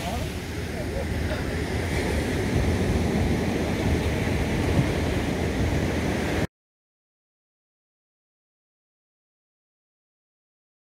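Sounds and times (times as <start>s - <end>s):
surf washing on beach: 0.0s - 6.5s
wind on microphone: 0.0s - 6.5s.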